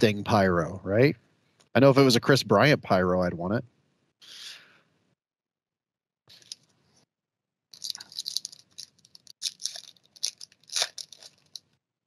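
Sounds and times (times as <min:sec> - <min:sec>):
foil wrapper crinkling: 0:07.8 - 0:11.6.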